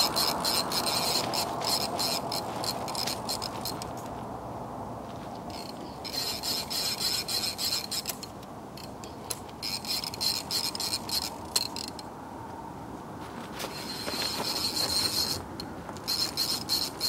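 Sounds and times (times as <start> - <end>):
fishing reel ratcheting: 0.0 - 3.9, 5.5 - 12.0, 16.0 - 17.0.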